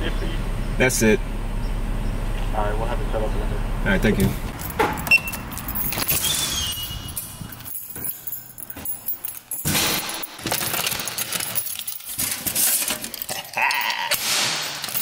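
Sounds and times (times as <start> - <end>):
rustling handling noise: 4.3 - 13.6
keys jangling: 4.5 - 15.0
short squeak: 6.1 - 7.5.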